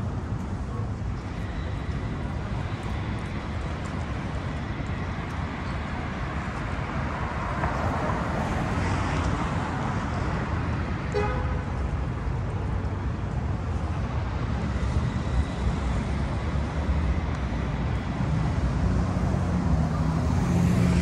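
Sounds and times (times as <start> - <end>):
city street traffic rumble: 0.0 - 21.0
car horn toot: 11.1 - 11.7
car passing: 17.6 - 21.0.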